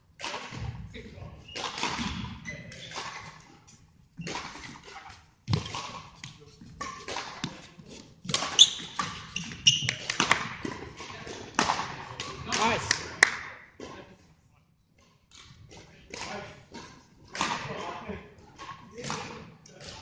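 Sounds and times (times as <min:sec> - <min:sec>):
shoes squeaking on floor: 0:01.4 - 0:05.8, 0:06.8 - 0:10.4
racket striking shuttlecock: 0:04.2 - 0:07.6, 0:08.2 - 0:13.6.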